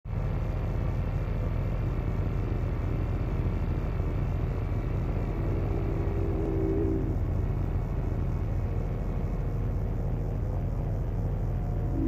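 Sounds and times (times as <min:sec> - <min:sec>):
generator running: 0:00.1 - 0:12.0
faint higher tone: 0:05.2 - 0:07.8, 0:11.4 - 0:12.0.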